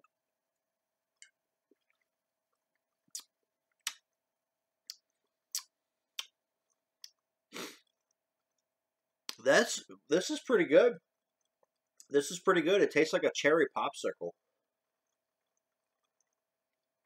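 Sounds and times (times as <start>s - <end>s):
wet lip smacks: 3.1s - 4.0s
tongue clicks: 3.1s - 4.1s, 4.9s - 6.4s, 7.0s - 7.2s.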